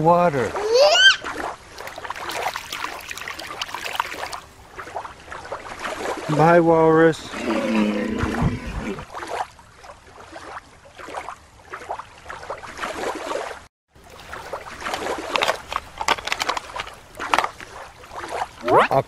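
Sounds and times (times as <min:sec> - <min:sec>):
shallow water sloshing and splashing: 0:00.0 - 0:18.9
crackling and rustling: 0:14.8 - 0:17.9.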